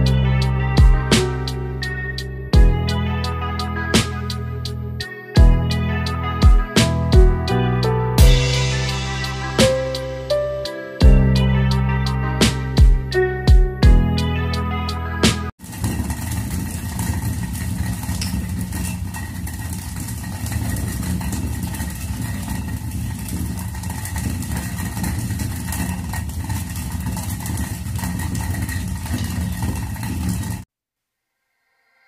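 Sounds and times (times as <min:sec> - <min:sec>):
grains cracking: 0:15.6 - 0:30.6
millstone grinding rumble: 0:15.6 - 0:30.6.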